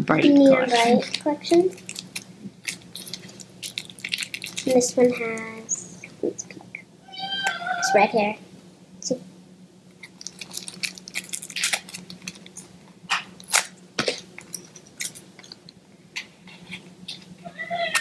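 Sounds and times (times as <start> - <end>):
plastic packaging crackling: 0.7 - 5.1, 10.0 - 15.7.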